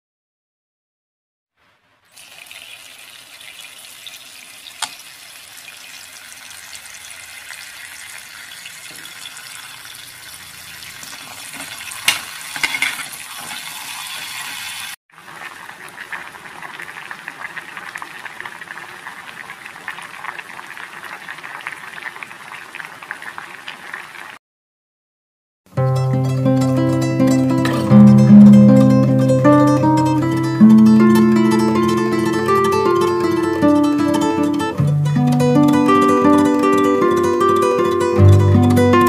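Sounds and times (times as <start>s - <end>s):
tap water pouring into pot: 2.1s - 23.8s
water boiling and bubbling: 2.1s - 24.4s.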